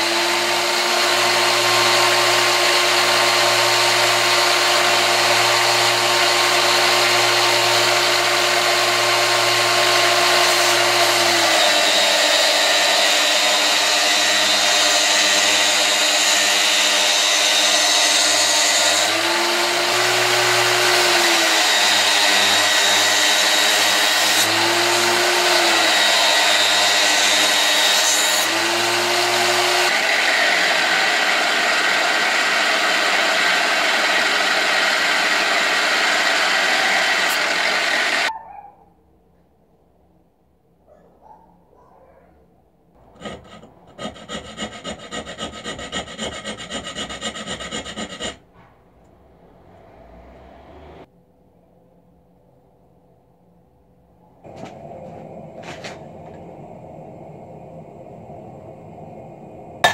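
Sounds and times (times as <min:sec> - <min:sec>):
belt grinder grinding steel: 0:00.0 - 0:38.3, 0:43.0 - 0:48.4.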